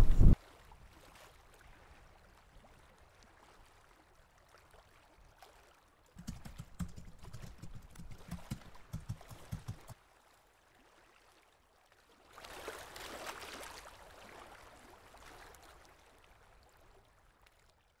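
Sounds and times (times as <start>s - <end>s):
low pulses: 0.0s - 0.4s
faint rush of water: 12.2s - 17.4s.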